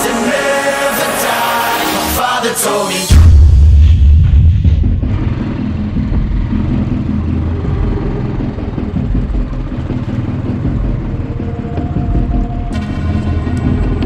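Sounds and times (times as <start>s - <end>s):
motorcycle engine running: 4.2s - 14.0s.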